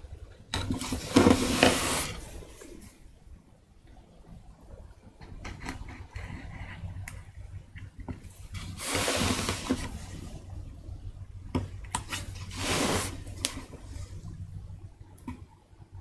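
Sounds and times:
steady low hum: 0:00.0 - 0:16.0
wooden block scraping on workbench: 0:00.8 - 0:02.3, 0:08.6 - 0:10.1, 0:12.4 - 0:14.0.

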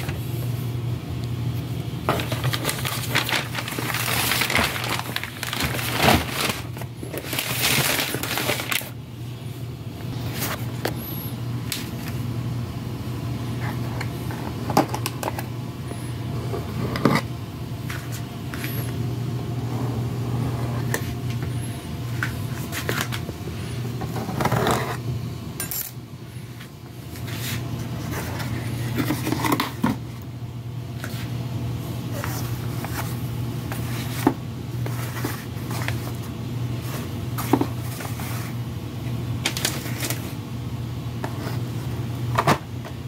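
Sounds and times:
steady low hum: 0:00.0 - 0:43.0
cardboard and paper rustling: 0:02.1 - 0:09.0, 0:27.2 - 0:30.0, 0:32.1 - 0:38.6, 0:39.4 - 0:40.4.

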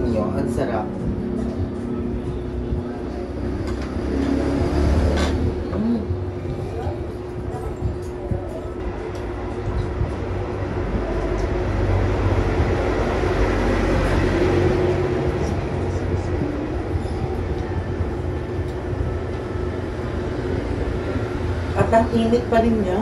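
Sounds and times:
passing vehicle rumble: 0:00.0 - 0:23.0
steady hum: 0:00.0 - 0:23.0.

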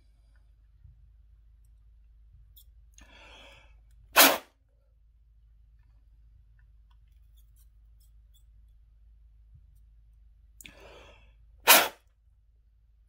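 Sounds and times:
sharp blast of air: 0:04.2 - 0:04.4, 0:11.7 - 0:12.0.

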